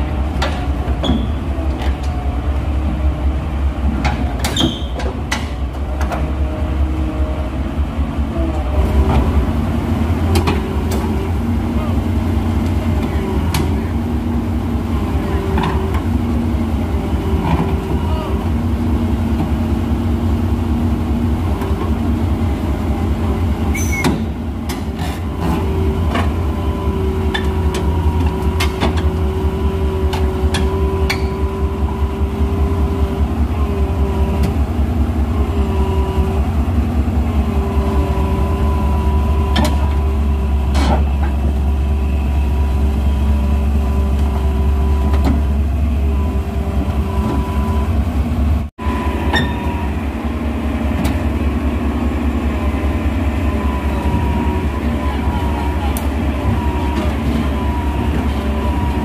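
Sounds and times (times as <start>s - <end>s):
metal tracks clanking on ramps: 0.0s - 2.4s, 3.8s - 6.4s, 27.2s - 29.3s, 30.0s - 31.9s, 49.0s - 51.8s
excavator diesel engine throbbing: 0.0s - 59.0s.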